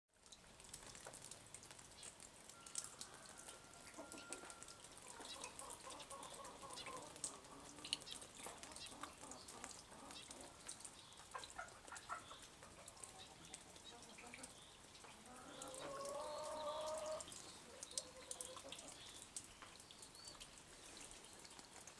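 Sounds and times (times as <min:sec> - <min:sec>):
chickens clucking: 0:03.9 - 0:10.6, 0:11.2 - 0:19.1.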